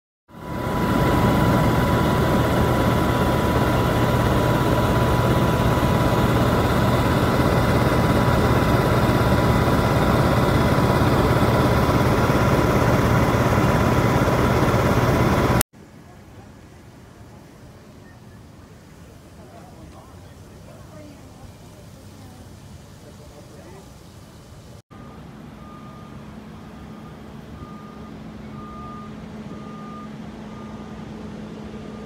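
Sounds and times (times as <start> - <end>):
aircraft cabin engine drone: 0.3 - 15.6, 24.9 - 32.0
constant high whine: 0.3 - 32.0
low hum: 0.4 - 15.6.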